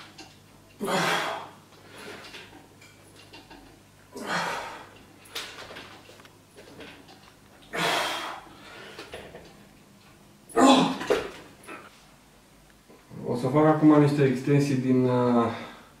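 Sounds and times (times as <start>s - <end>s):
man breathing hard: 4.2s - 5.0s, 7.7s - 9.2s.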